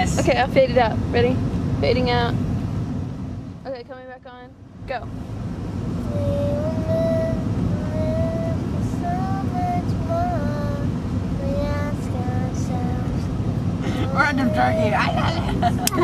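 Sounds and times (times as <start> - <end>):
car driving rumble: 0.0 - 16.0
child singing: 6.1 - 13.3.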